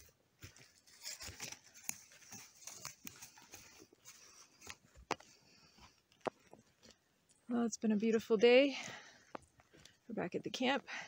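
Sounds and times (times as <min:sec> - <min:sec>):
footsteps on dry pine needles: 0:00.0 - 0:06.8
twigs snapping: 0:01.0 - 0:03.8.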